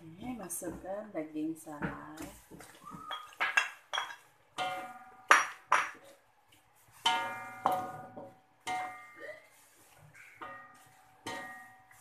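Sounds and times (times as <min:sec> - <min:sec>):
spatula clanking on metal wok: 0:03.1 - 0:06.1, 0:07.0 - 0:09.5, 0:10.2 - 0:12.0.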